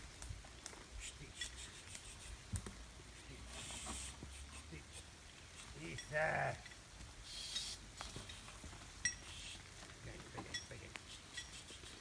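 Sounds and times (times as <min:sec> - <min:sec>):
rustling: 0:00.0 - 0:12.0
light metallic clinks: 0:05.9 - 0:06.8, 0:07.5 - 0:09.4, 0:10.3 - 0:11.7.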